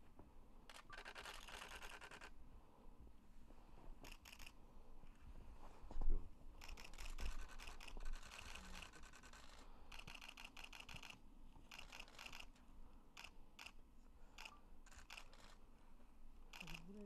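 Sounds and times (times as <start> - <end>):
camera shutter clicks: 0.7 - 2.3, 4.0 - 4.6, 6.6 - 12.6, 14.4 - 15.6, 16.5 - 16.9.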